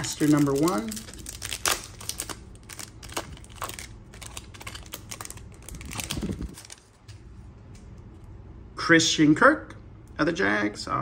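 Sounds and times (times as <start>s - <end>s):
foil wrapper crinkling: 0.0s - 7.1s.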